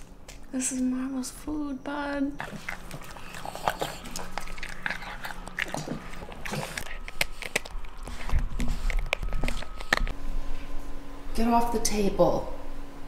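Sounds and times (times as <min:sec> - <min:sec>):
dog chewing and crunching food: 0:02.1 - 0:10.2.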